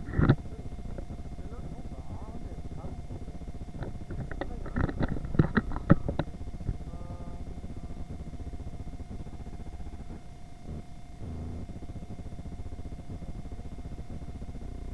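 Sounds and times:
supermarket hum with constant tone: 0.0 - 14.9
sharp clicks and knocks: 0.1 - 1.1, 3.8 - 6.8.

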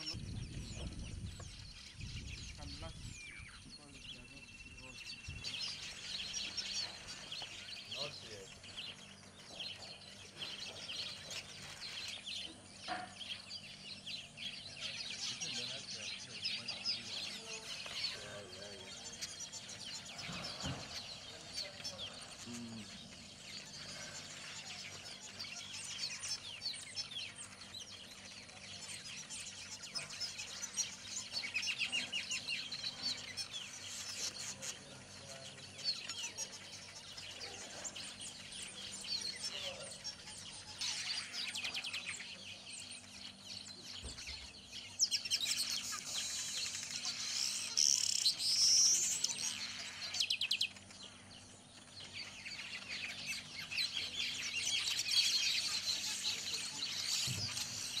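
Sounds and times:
birds chattering: 0.0 - 58.0.

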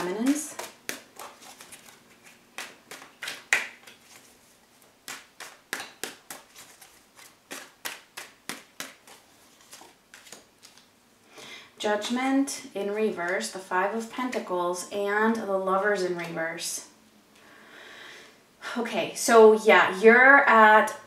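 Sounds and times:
cards being shuffled by hand: 0.0 - 10.9.

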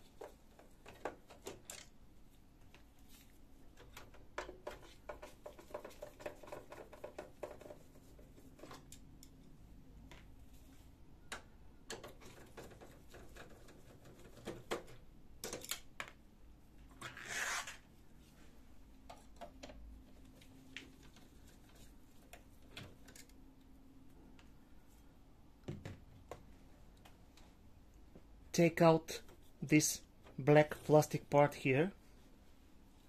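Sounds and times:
clicks and taps on plastic parts: 0.1 - 1.9, 3.7 - 10.3, 11.2 - 16.2, 19.0 - 21.3.

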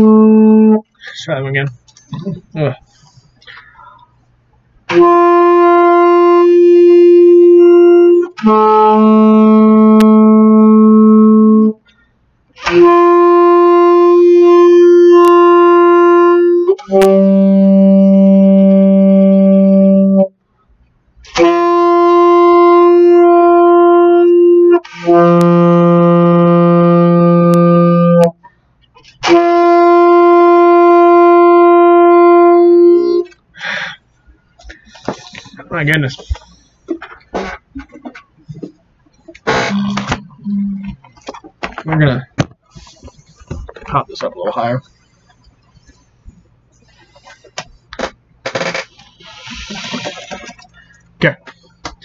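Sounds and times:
saxophone playing long tones: 0.0 - 0.9, 4.9 - 11.8, 12.6 - 20.4, 21.2 - 28.4, 29.2 - 33.4, 39.4 - 41.0, 48.5 - 50.7.

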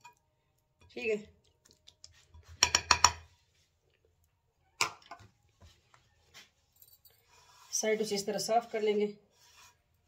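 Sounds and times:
spoon tapping a clay bowl: 2.5 - 3.3
faint scrapes: 7.1 - 10.0.

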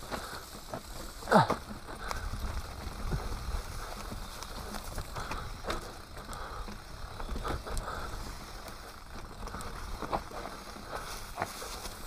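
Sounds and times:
bike clicking and rattling: 0.0 - 12.0
bike tyres rolling over dirt and leaves: 0.0 - 12.0.

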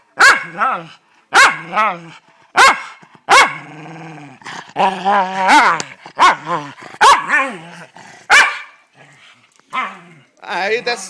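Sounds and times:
small dogs barking: 0.2 - 0.7, 1.3 - 1.8, 2.5 - 3.7, 5.6 - 7.6, 8.3 - 8.9
dogs growling: 1.7 - 8.3, 8.9 - 11.0.

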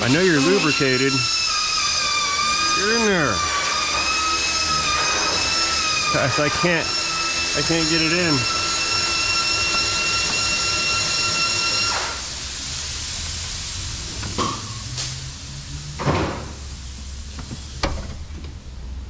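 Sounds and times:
loud hiss with whistling whine: 0.0 - 15.6.

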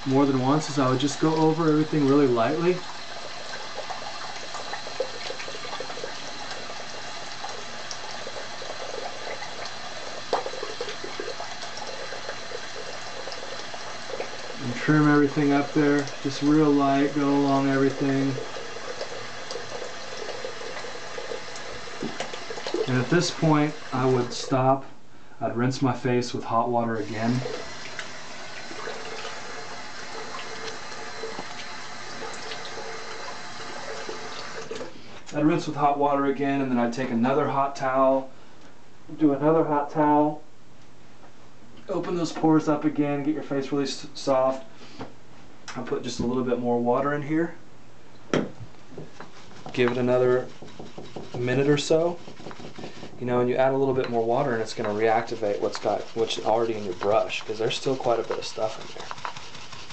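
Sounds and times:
faucet running: 0.0 - 24.6, 26.8 - 35.0, 49.0 - 59.9
razor scraping stubble: 49.0 - 59.9.

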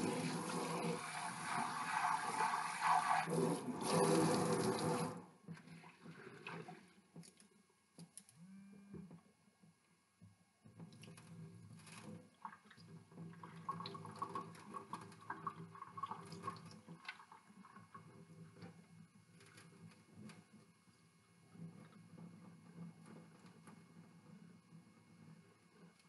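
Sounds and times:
water sloshing and dripping: 10.8 - 18.8.

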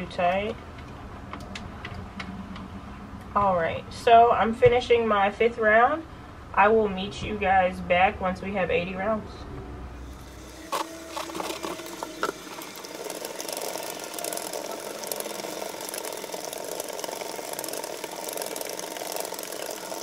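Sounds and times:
knitting machine clicking: 10.2 - 20.0.

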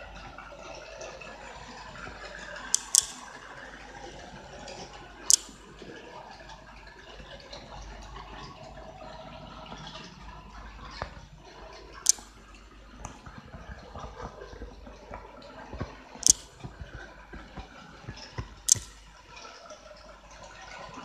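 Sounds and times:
model train wheels clicking on rails: 2.5 - 3.3, 5.2 - 5.7, 12.1 - 12.4, 16.2 - 16.6, 18.6 - 19.1
sharp high clicks: 2.7 - 3.4, 5.2 - 5.7, 12.1 - 12.4, 16.2 - 16.7, 18.2 - 19.2.

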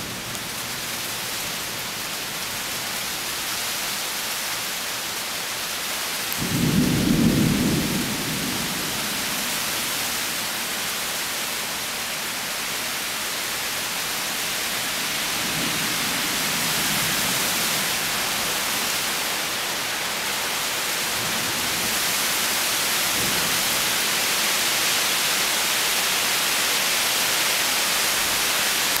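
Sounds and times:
rain hissing: 0.0 - 29.0
thunder rumbling: 6.4 - 9.6.

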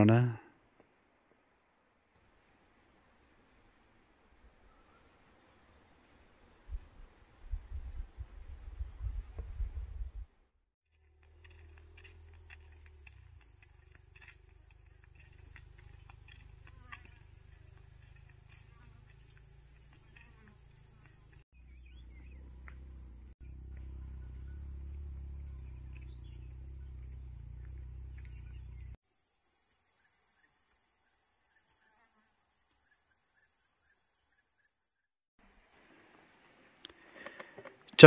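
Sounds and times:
insects trilling: 10.9 - 34.7.

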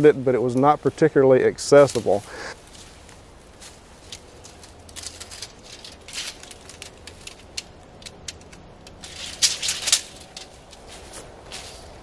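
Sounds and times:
footsteps crunching dry leaves: 1.7 - 8.0, 9.0 - 12.0.

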